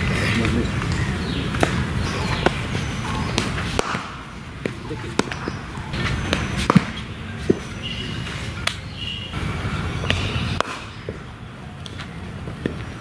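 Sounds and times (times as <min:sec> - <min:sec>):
cricket ball striking bat: 0:03.3 - 0:05.5, 0:06.3 - 0:07.7, 0:10.6 - 0:11.2.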